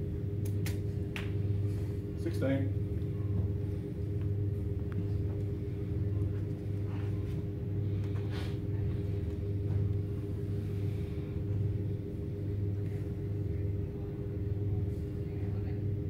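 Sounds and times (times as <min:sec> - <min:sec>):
steady low hum: 0:00.0 - 0:16.0
faint knocks and shuffles: 0:03.0 - 0:10.6.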